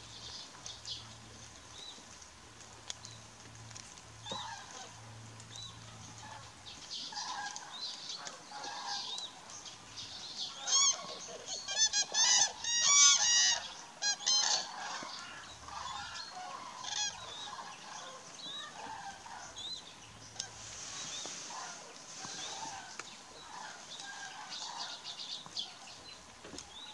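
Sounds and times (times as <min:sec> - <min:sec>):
cranes calling: 0:06.0 - 0:19.6, 0:20.2 - 0:26.1.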